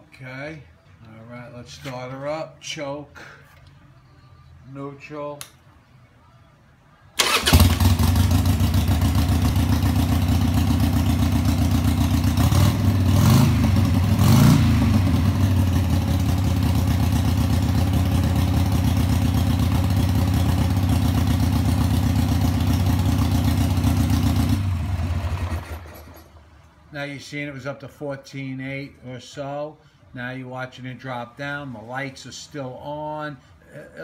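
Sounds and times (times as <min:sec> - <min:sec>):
motorcycle engine idling: 0:07.2 - 0:26.2.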